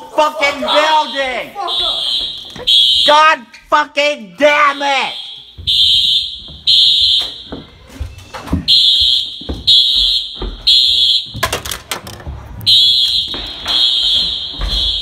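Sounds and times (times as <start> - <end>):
fire alarm high-pitched tone: 0.6 - 3.3, 4.7 - 7.7, 8.7 - 11.4, 12.7 - 15.0
clicks and knocks: 11.3 - 12.6.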